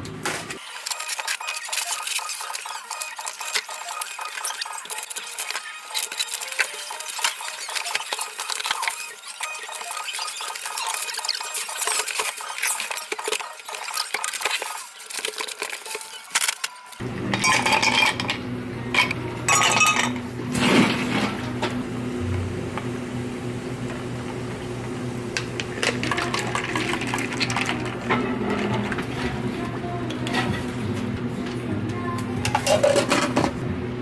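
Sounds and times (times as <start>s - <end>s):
low hum of cafe equipment: 17.0s - 34.0s.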